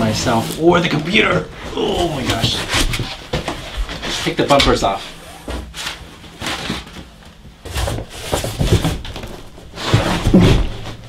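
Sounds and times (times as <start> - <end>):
cardboard boxes scraping: 1.9 - 4.5, 5.2 - 11.0
knocks and bumps: 8.0 - 11.0.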